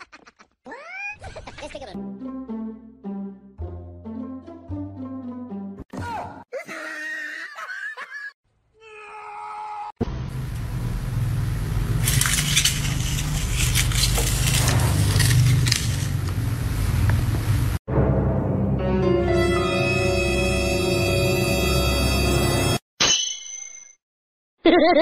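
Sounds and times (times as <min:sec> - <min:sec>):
music: 0:02.0 - 0:05.9, 0:17.9 - 0:22.8
caster wheels rumbling on tile: 0:11.9 - 0:16.6.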